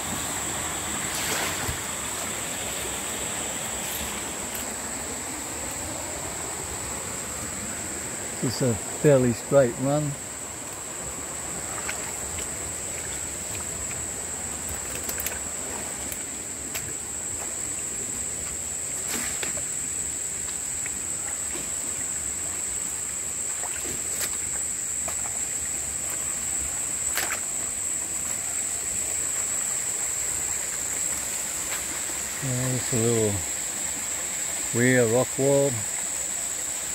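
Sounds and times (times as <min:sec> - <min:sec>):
creek water running: 0:00.0 - 0:36.9
high-pitched insect drone: 0:00.0 - 0:36.9.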